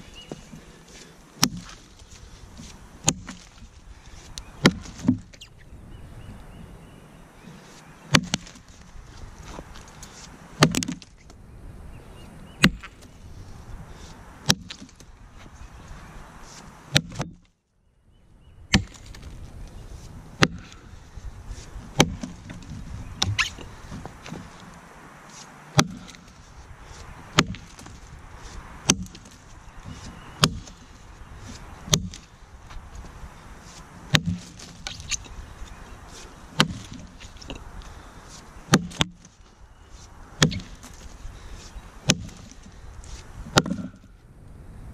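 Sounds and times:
axe chopping into a log: 1.4s - 1.8s, 3.0s - 3.6s, 4.6s - 5.3s, 8.1s - 8.6s, 10.6s - 11.1s, 12.6s - 13.0s, 14.4s - 15.0s, 16.9s - 17.4s, 18.7s - 19.3s, 20.4s - 20.9s, 21.9s - 23.6s, 25.7s - 26.4s, 27.3s - 28.0s, 28.8s - 29.4s, 30.0s - 30.9s, 31.6s - 32.3s, 34.1s - 35.2s, 36.6s - 37.6s, 38.7s - 39.4s, 40.4s - 41.0s, 42.0s - 42.6s, 43.5s - 44.0s.

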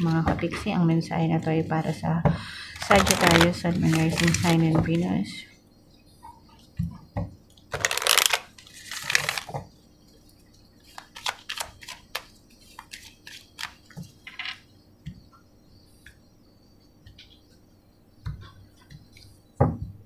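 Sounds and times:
cards shuffling: 2.8s - 4.7s, 7.7s - 9.5s, 10.9s - 14.0s
cards clicking and tapping: 10.9s - 14.5s.

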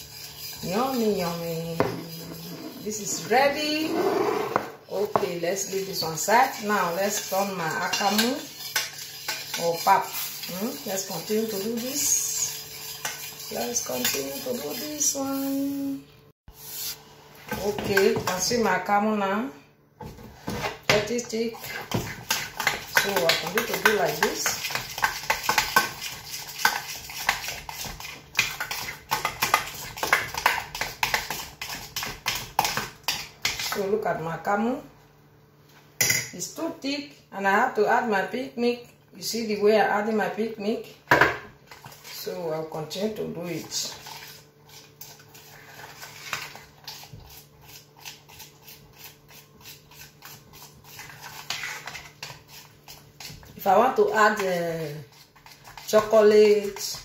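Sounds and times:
spoon scraping a saucepan: 0.0s - 15.9s, 20.5s - 33.9s, 43.1s - 57.0s.

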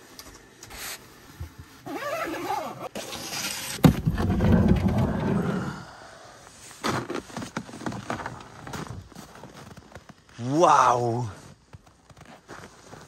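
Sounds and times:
footsteps crunching in snow: 6.6s - 13.0s.

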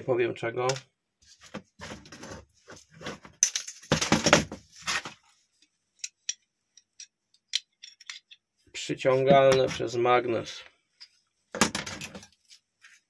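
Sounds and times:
scrap metal parts clattering: 3.2s - 4.4s.

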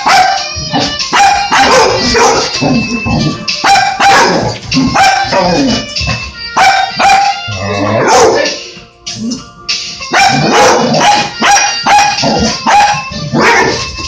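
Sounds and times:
dog barking: 0.0s - 2.6s, 3.6s - 5.6s, 6.6s - 8.6s, 10.1s - 13.8s.

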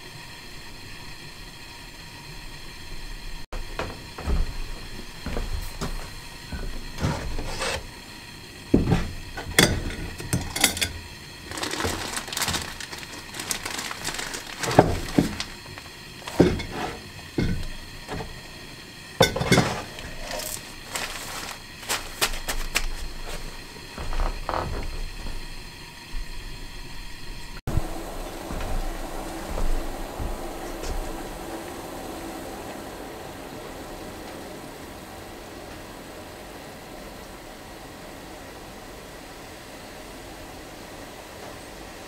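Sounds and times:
steady hiss: 0.0s - 42.0s
plastic bag crinkling: 11.4s - 15.9s, 20.2s - 23.6s.

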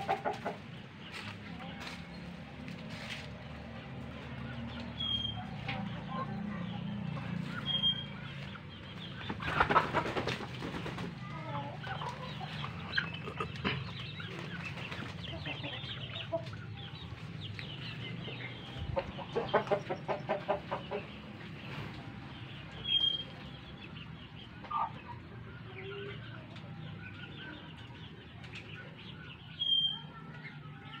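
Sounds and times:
chickens clucking: 0.0s - 31.0s
wings flapping: 9.3s - 11.3s.

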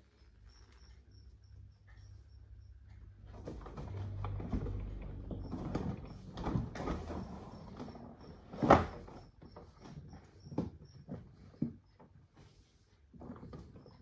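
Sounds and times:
plastic toy car creaking: 3.3s - 11.8s.

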